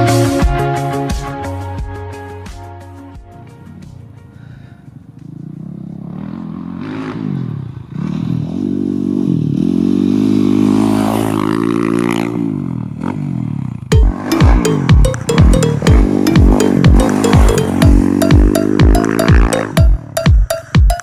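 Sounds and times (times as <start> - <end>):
dirt bike engine revving: 5.4 - 14.7
music with heavy bass drum: 13.9 - 21.0.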